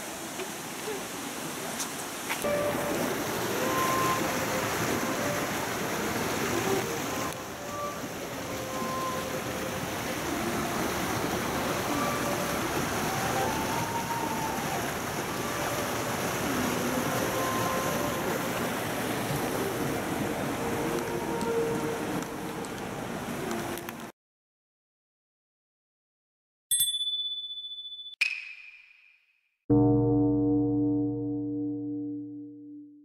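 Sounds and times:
mountain stream rushing: 0.0s - 24.1s.

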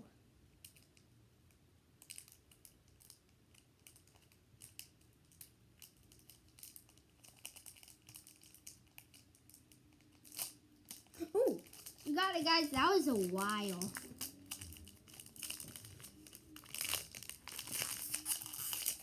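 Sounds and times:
foil wrapper crinkling and tearing: 3.8s - 19.0s.

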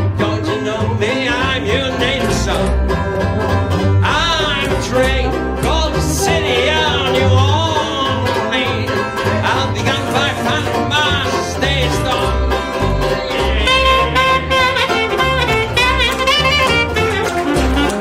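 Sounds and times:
plucked double bass: 0.0s - 18.0s
strummed banjo: 0.0s - 18.0s
alto saxophone melody: 12.8s - 18.0s.

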